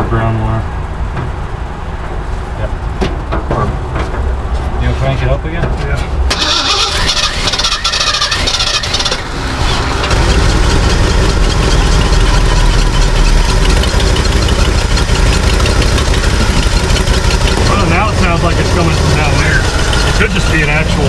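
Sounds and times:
engine leak noise: 0:06.3 - 0:21.0
starter motor cranking: 0:06.3 - 0:21.0
truck engine idling: 0:06.3 - 0:21.0.

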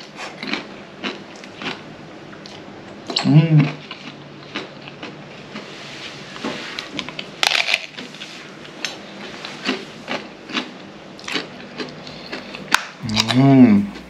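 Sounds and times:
loud crunching bite: 0:00.0 - 0:01.8, 0:07.0 - 0:08.1, 0:09.6 - 0:14.0
chewing crunches and clicks: 0:00.0 - 0:05.7, 0:08.8 - 0:14.0.

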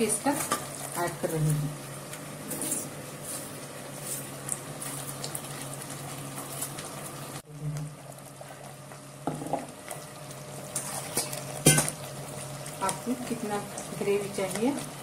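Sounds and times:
curry bubbling in a pot: 0:03.1 - 0:15.0.

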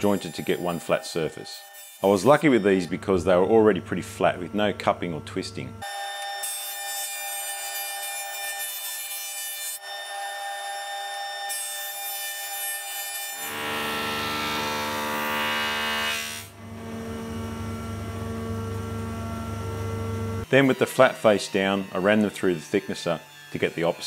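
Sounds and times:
jointer planing a wooden board: 0:00.0 - 0:19.9, 0:20.6 - 0:24.0
jointer motor humming: 0:13.5 - 0:20.5.

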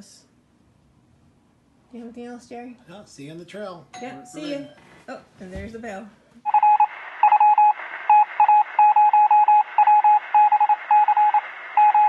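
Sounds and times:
morse code beeps: 0:06.5 - 0:12.0.

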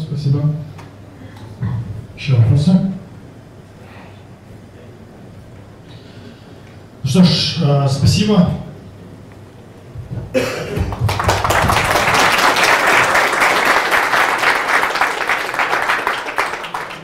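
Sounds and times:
audience applauding: 0:10.8 - 0:17.0.

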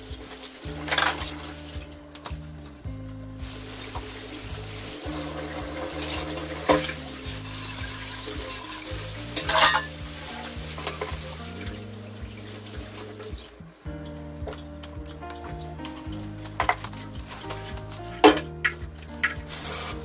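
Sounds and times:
background music with bass line: 0:00.0 - 0:20.0
hiss of washing water: 0:03.4 - 0:13.6, 0:19.2 - 0:20.0
steel utensils clattering: 0:05.1 - 0:11.2
steel dishes being scrubbed: 0:09.4 - 0:10.0.

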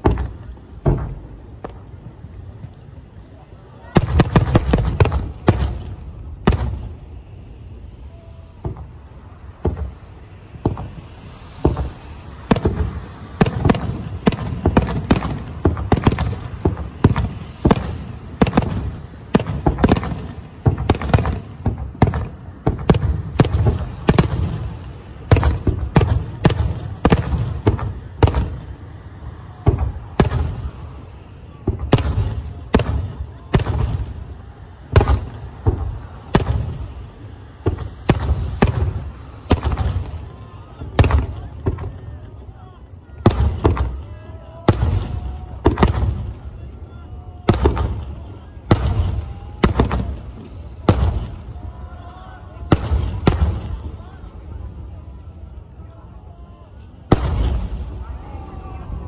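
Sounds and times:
firework shells bursting: 0:04.0 - 0:42.4, 0:47.4 - 0:54.0.

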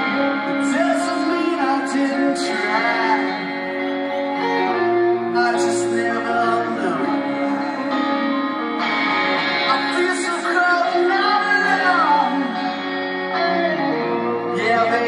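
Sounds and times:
distant live rock band: 0:00.0 - 0:15.0
person singing lead vocal: 0:00.0 - 0:15.0.

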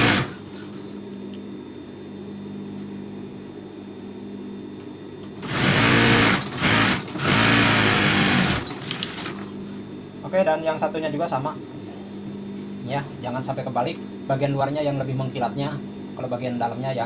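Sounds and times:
sewing machine stitching: 0:00.0 - 0:00.4, 0:05.4 - 0:09.4
sewing machine hum: 0:00.0 - 0:00.6, 0:05.4 - 0:09.4.

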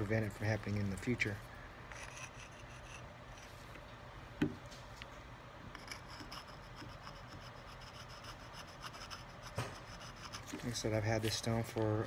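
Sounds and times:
stone scraping against steel: 0:01.9 - 0:03.6, 0:05.7 - 0:10.9.

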